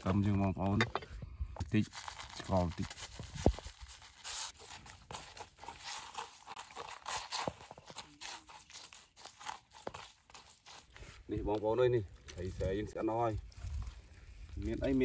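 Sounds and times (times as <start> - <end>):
stick scraping on leaf: 1.7 - 12.6.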